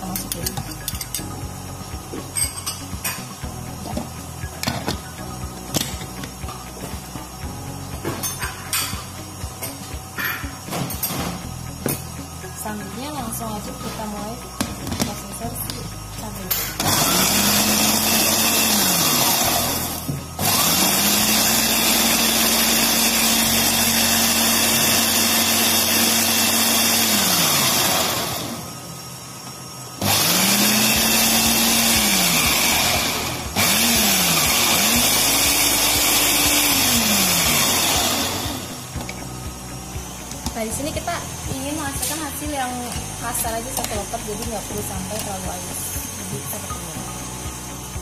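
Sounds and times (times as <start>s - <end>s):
food processor motor whirring: 14.0s - 48.0s.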